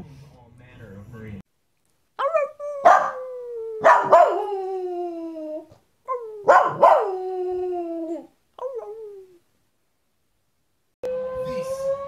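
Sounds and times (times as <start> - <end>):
dog yipping: 2.2 - 4.5, 6.1 - 7.2
dog howling: 2.2 - 9.4.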